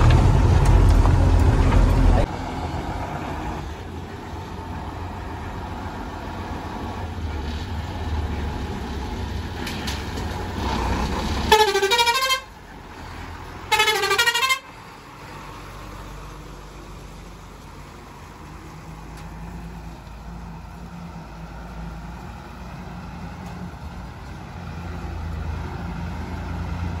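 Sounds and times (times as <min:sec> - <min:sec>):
diesel truck engine running: 0:00.0 - 0:27.0
truck horn blasts: 0:11.5 - 0:12.5, 0:13.7 - 0:14.7.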